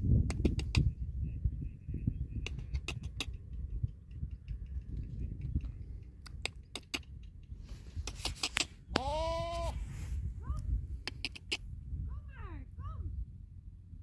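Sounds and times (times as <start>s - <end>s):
wind noise on microphone: 0.0s - 14.0s
sharp clicks and ticks: 0.3s - 0.9s, 2.4s - 8.7s, 11.0s - 11.6s.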